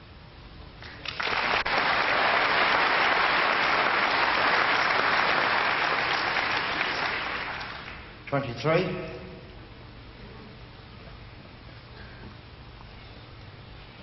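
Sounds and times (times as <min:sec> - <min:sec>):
audience applauding: 0:00.8 - 0:08.1.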